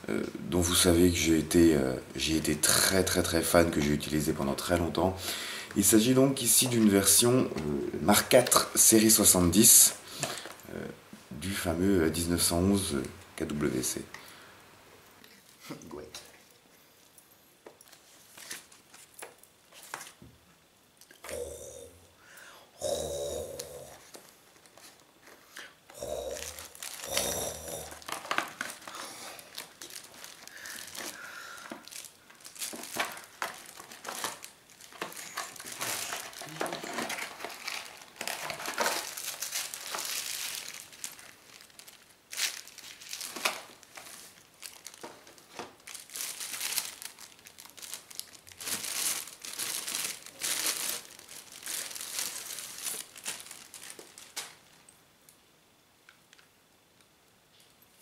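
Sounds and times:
plastic bag crinkling: 26.0 - 54.9.

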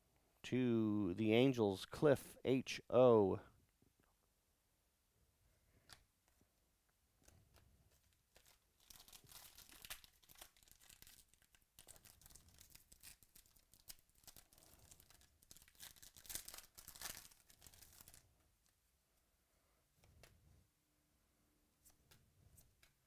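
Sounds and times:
foil wrapper tearing and crinkling: 8.0 - 18.2.

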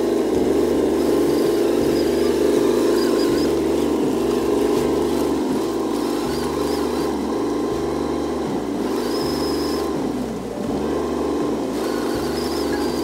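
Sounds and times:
toy truck motor whirring: 0.0 - 13.0.

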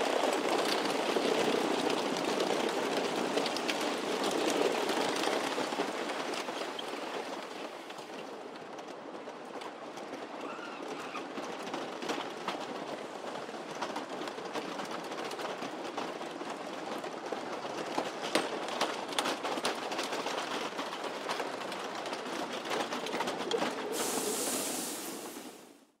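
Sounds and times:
roller coaster rattling on track: 0.0 - 25.7
bright hiss: 23.9 - 25.8.

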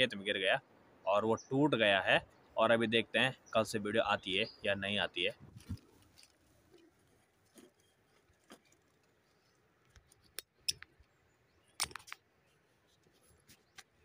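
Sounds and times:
weeds snapping as pulled: 11.8 - 12.2.

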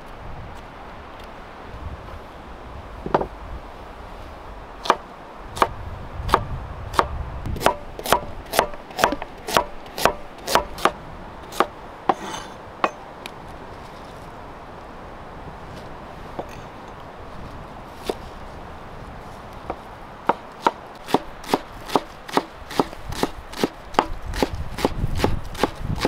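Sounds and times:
knife chopping on wooden board: 7.0 - 12.5, 20.6 - 25.8.

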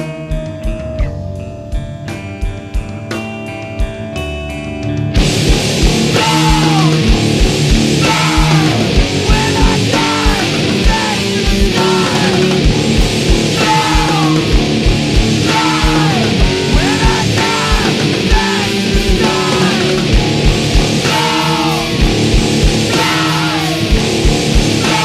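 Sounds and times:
bass guitar: 0.0 - 25.0
distorted electric guitars: 0.0 - 25.0
driving kick drum: 5.1 - 25.0.

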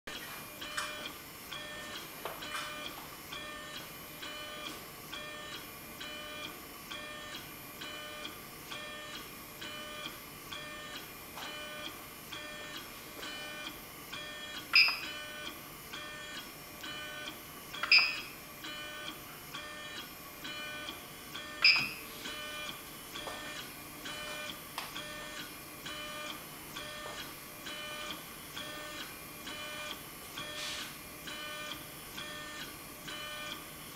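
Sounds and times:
short loud beeps: 21.6 - 22.0.

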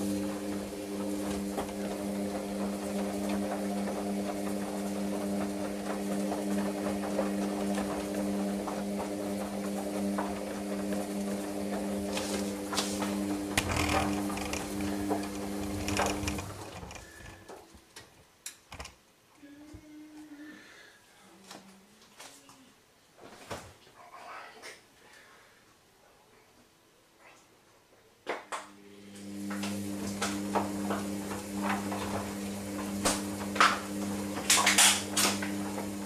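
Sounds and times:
washing machine hum: 0.0 - 17.9, 28.8 - 36.0
clicks and knocks: 12.7 - 19.0.

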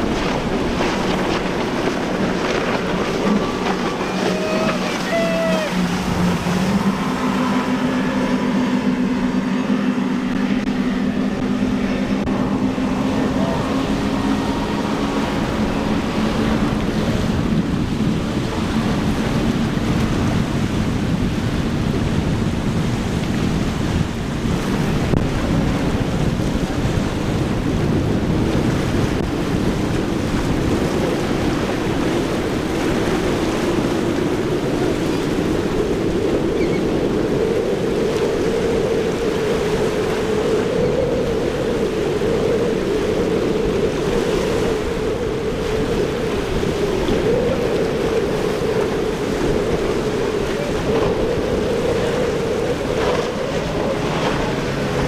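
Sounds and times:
outboard engines running: 0.0 - 55.0
surf: 0.0 - 55.0
wind buffeting microphone: 0.0 - 55.0.

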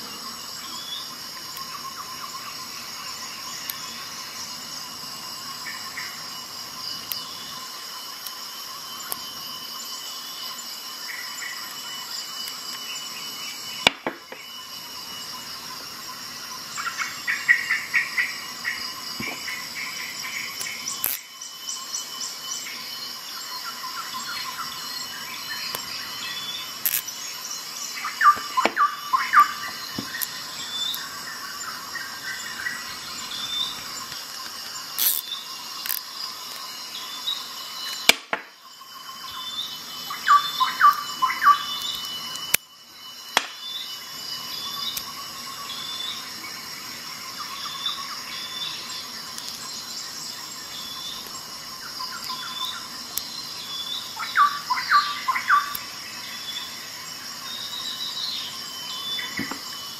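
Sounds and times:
steady high-pitched whine: 0.0 - 59.9
bit ratchet clicking and scraping: 20.9 - 21.2, 26.8 - 27.1, 35.0 - 36.6
sharp clicks: 26.8 - 27.1, 34.1 - 36.0.

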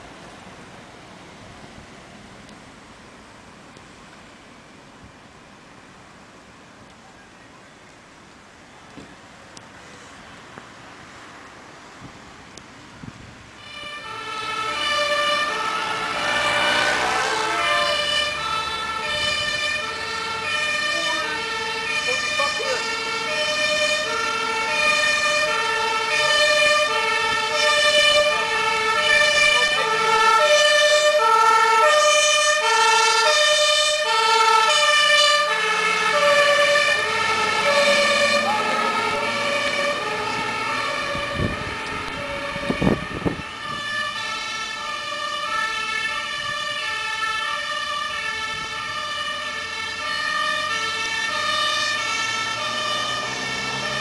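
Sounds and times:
two-tone siren: 13.6 - 54.0.

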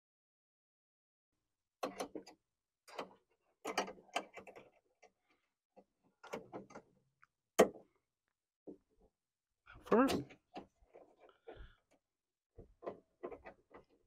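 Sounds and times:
latch rods clicking and rattling: 1.8 - 5.2, 6.2 - 7.0, 12.6 - 14.0.

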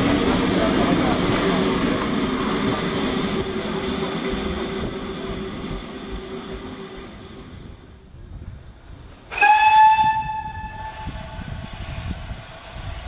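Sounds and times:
low engine and station rumble: 0.0 - 13.0
steam locomotive whistle blast: 9.3 - 11.6.

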